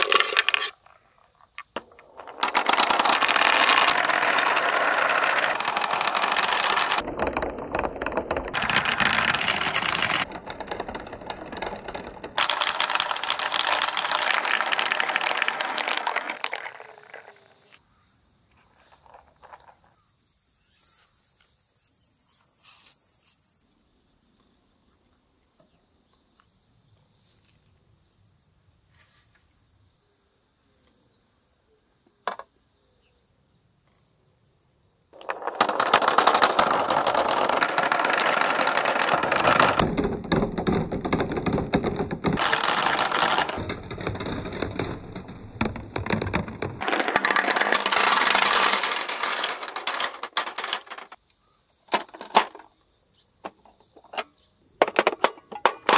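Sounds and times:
plastic balls rattling down a pipe: 0.0s - 17.8s, 35.2s - 51.2s, 54.8s - 55.9s
faint insect chirring: 16.9s - 35.1s, 51.1s - 51.9s.

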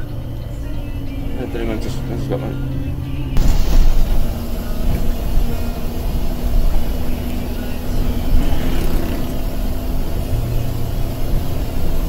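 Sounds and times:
bus engine drone: 0.0s - 12.0s
low road rumble: 0.0s - 12.0s.

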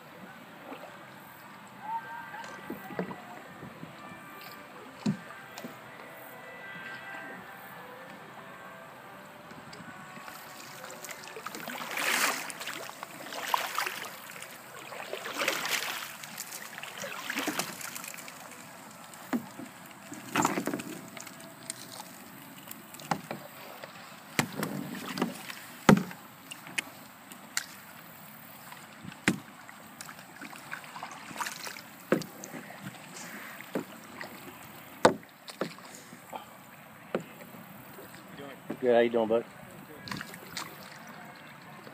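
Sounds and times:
splashing and draining water: 10.2s - 26.8s, 28.7s - 36.4s
trap knocking against kayak: 24.4s - 26.2s.

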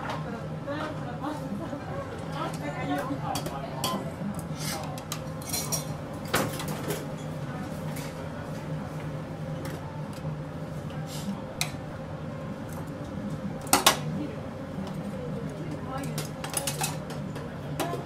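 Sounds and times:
kitchen equipment hum: 0.0s - 18.0s
tongs and dishes clinking: 4.7s - 5.9s, 16.0s - 17.1s.

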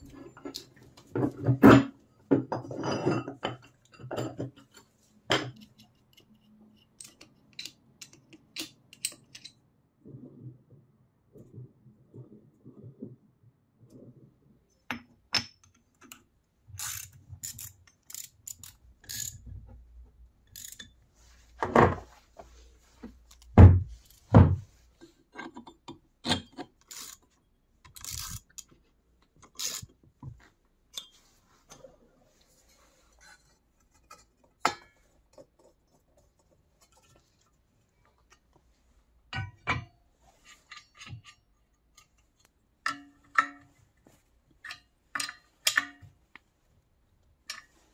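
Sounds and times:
metal parts and wrench clinking: 2.6s - 9.6s, 16.8s - 19.5s, 20.5s - 21.0s, 27.9s - 28.7s.

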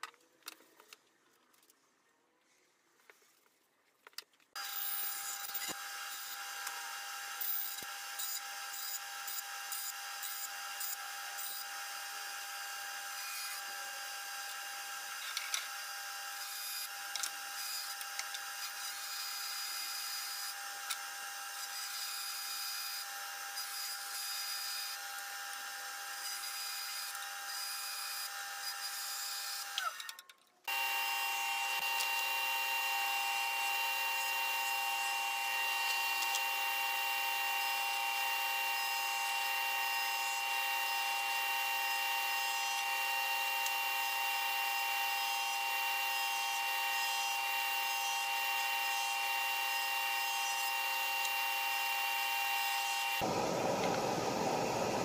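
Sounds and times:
table saw running: 30.7s - 55.0s.

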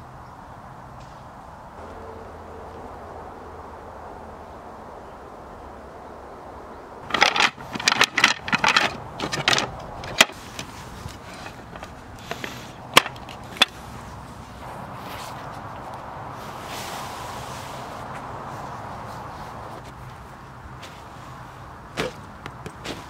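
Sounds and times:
wooden chair parts clacking: 7.0s - 14.2s.

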